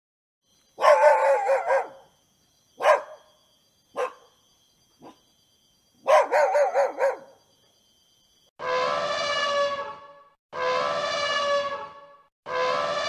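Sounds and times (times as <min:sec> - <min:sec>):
dog barking: 0:00.8 - 0:02.1, 0:02.8 - 0:03.3, 0:03.9 - 0:04.4, 0:05.0 - 0:05.2, 0:06.0 - 0:07.4.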